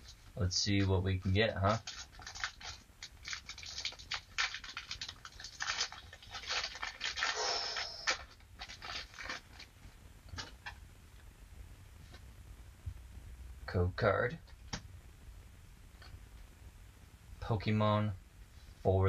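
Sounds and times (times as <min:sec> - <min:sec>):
foil wrapper tearing and crinkling: 0:01.7 - 0:09.7.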